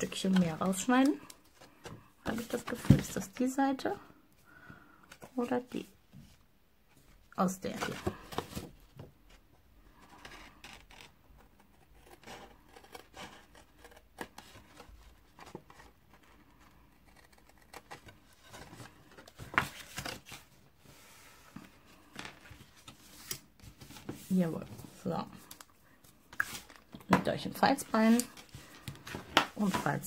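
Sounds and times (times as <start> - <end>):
paper sheet rustling: 18.5 - 21.4, 22.2 - 25.6, 27.6 - 30.0.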